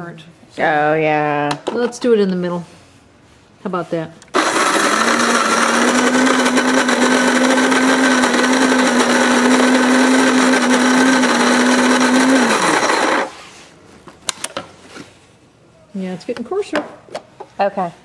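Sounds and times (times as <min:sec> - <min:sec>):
coffee grinder grinding beans: 0:04.3 - 0:13.4.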